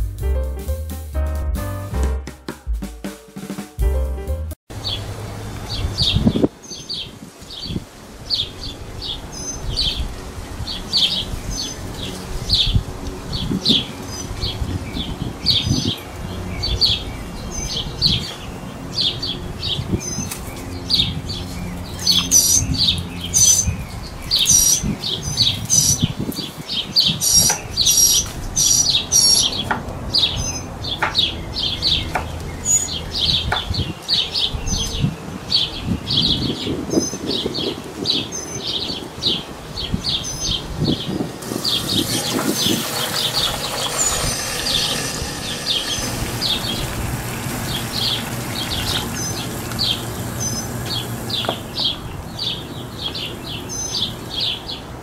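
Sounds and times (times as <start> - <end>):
small birds chirping: 4.8 - 55.0
high whistled bird notes: 22.0 - 26.1, 41.4 - 52.0.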